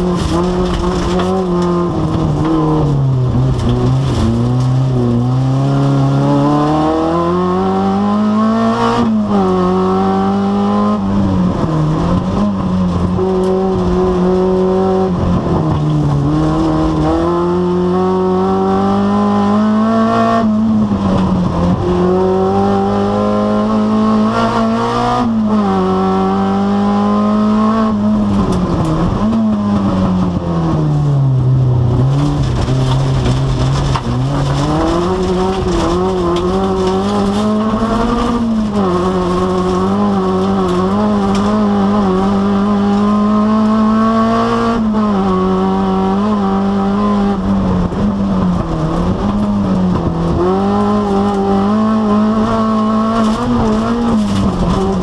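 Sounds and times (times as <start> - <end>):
tyre and track noise: 0.0 - 7.7, 27.9 - 55.0
race car engine revving: 0.0 - 55.0.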